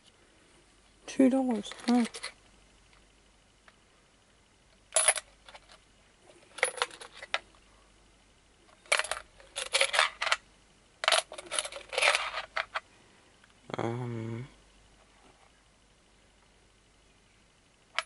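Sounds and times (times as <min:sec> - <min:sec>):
coins clinking and rattling: 0:01.5 - 0:02.4, 0:04.9 - 0:05.8, 0:06.4 - 0:07.4, 0:08.8 - 0:10.4, 0:11.0 - 0:12.8.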